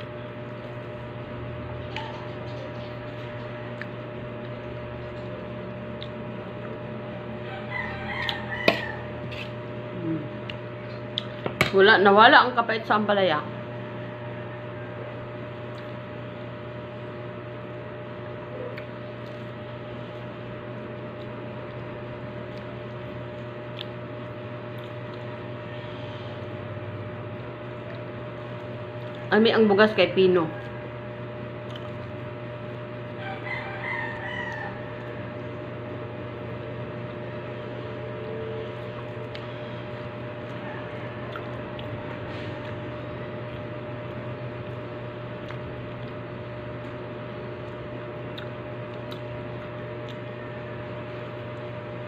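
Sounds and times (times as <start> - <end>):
low background hum: 0.0 - 52.0
rooster crowing: 7.4 - 9.2, 13.6 - 15.2, 30.0 - 31.3, 33.1 - 35.7, 40.4 - 42.3, 50.2 - 50.9.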